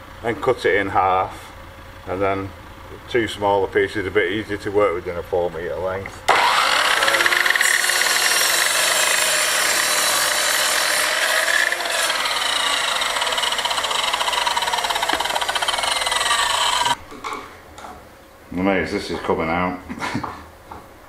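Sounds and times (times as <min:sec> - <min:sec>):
mitre saw cutting wood: 0:06.3 - 0:17.0.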